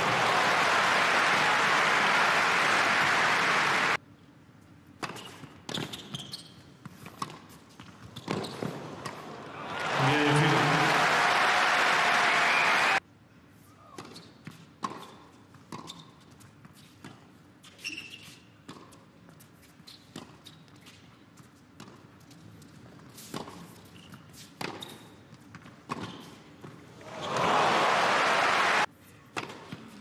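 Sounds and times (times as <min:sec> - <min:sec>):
applause: 0:00.0 - 0:04.0, 0:09.6 - 0:13.0, 0:27.0 - 0:28.9.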